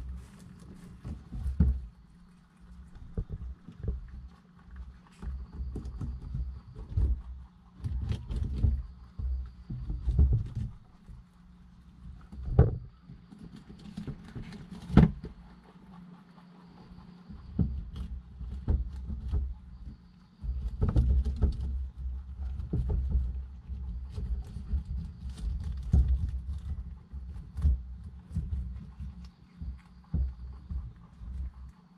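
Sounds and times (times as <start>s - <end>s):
rabbits tapping on glass tank floor: 17.3s - 31.8s.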